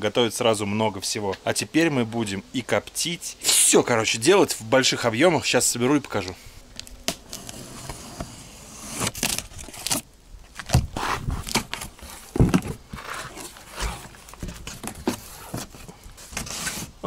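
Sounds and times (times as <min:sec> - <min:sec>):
cardboard box being opened: 0:07.3 - 0:10.0, 0:10.6 - 0:17.0.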